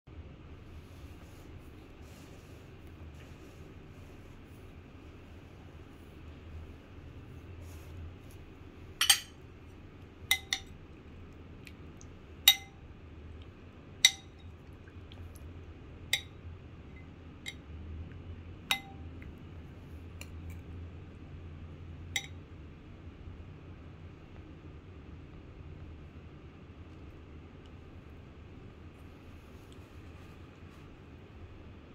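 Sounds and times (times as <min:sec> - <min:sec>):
faint low hum: 0:00.1 - 0:31.9
spoon clinking on bowl: 0:09.0 - 0:09.4, 0:10.3 - 0:10.8, 0:12.5 - 0:12.8, 0:14.0 - 0:14.5, 0:16.1 - 0:16.4, 0:18.7 - 0:19.2, 0:22.2 - 0:22.4.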